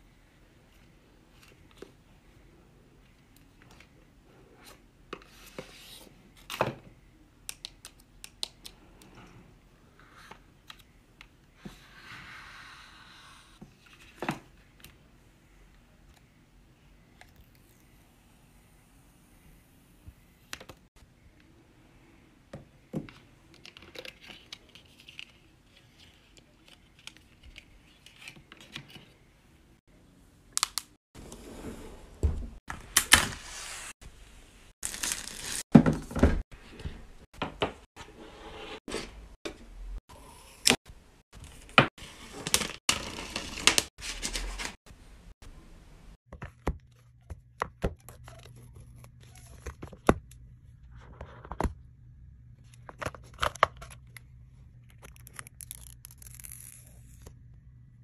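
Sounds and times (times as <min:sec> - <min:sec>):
packaging tearing and crinkling: 0:34.8 - 0:35.6.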